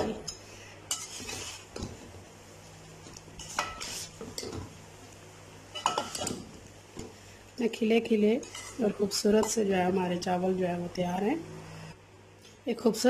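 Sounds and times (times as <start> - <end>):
metal spoon scraping metal pot: 0.9 - 1.7.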